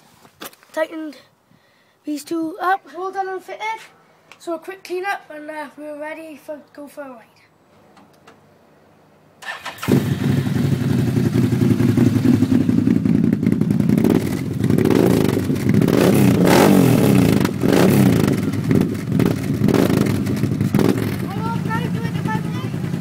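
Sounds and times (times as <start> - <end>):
atv engine starting and idling: 9.4 - 23.0
engine revving: 9.4 - 23.0.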